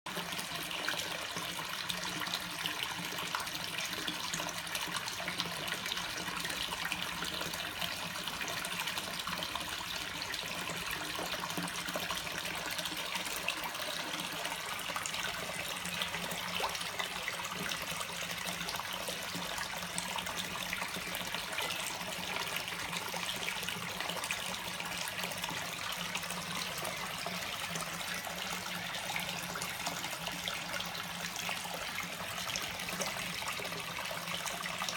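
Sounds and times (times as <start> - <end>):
pond water splashing and trickling: 0.1 - 34.9.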